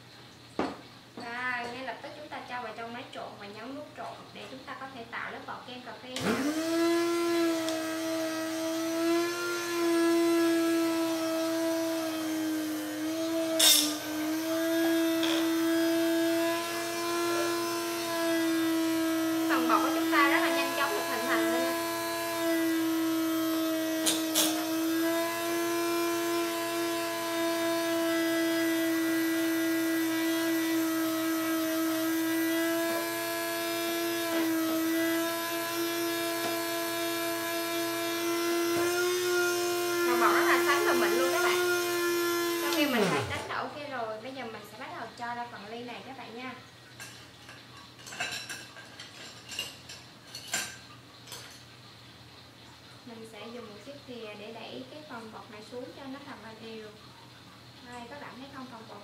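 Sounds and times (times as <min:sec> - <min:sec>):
drink mixer running: 0:06.2 - 0:51.6.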